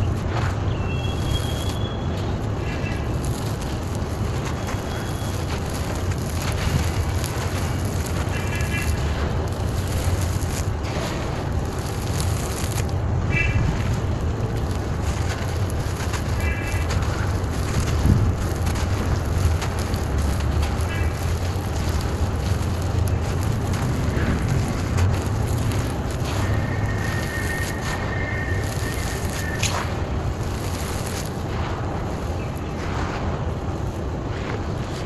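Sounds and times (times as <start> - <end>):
grit pattering onto earth: 0.0 - 35.0
steady low rumble: 0.0 - 35.0
soil crunching in hand: 2.7 - 31.5.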